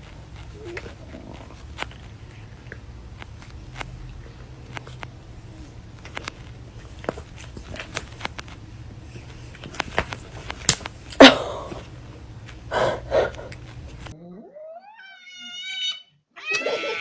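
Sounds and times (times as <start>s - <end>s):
bedding rustling and tapping: 0.0s - 12.7s.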